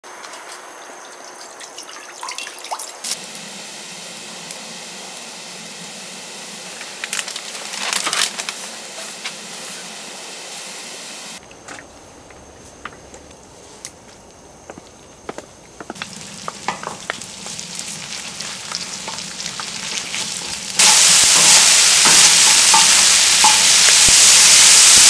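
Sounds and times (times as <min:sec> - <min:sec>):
water poured onto hot griddle: 0:01.7 - 0:10.6, 0:16.0 - 0:25.0
boiling water steaming hiss: 0:01.8 - 0:12.7, 0:15.7 - 0:25.0.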